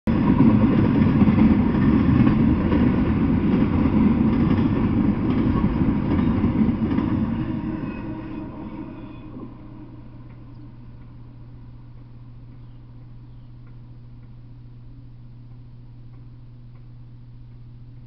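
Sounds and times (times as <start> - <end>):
freight train rumbling past: 0.1 - 12.5.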